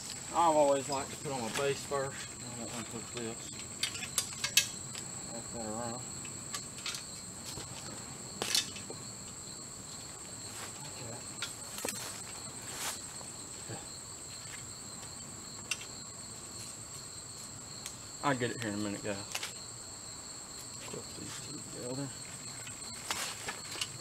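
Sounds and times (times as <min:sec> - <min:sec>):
high-pitched insect drone: 0:00.0 - 0:24.0
clicks and knocks of metal frame: 0:02.8 - 0:05.0, 0:08.4 - 0:09.0.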